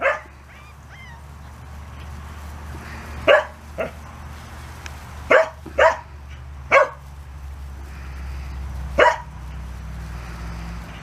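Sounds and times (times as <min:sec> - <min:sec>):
dog barking: 0:00.0 - 0:01.2, 0:03.2 - 0:04.0, 0:05.3 - 0:06.1, 0:06.7 - 0:07.0, 0:09.0 - 0:09.3.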